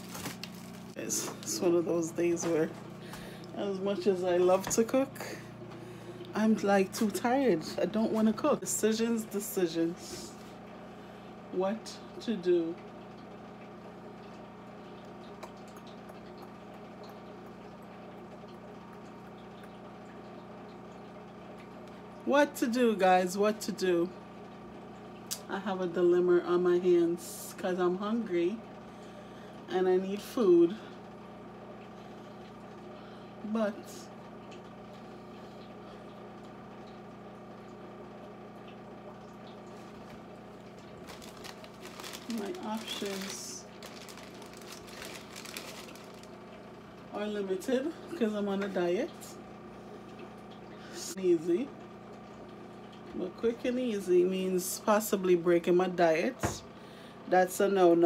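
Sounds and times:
steady low hum: 0.0 - 58.0
food simmering bubbling ticks: 12.9 - 22.2.

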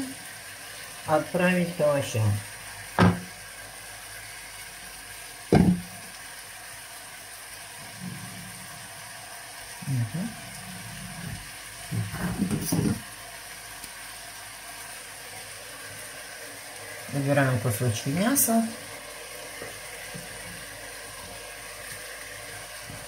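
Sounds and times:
pan frying hiss: 0.0 - 23.0
utensil knock: 3.0 - 3.3, 5.5 - 5.9.

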